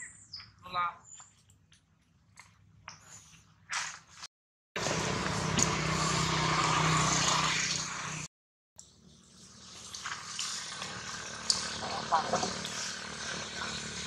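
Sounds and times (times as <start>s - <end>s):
vehicle engine running: 4.8s - 8.3s, 9.4s - 14.0s.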